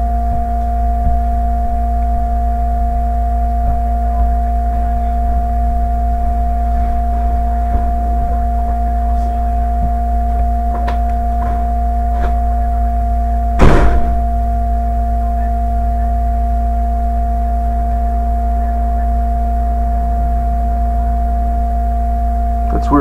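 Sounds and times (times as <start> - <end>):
electrical hum: 0.0 - 23.0
loud thump: 13.6 - 14.5.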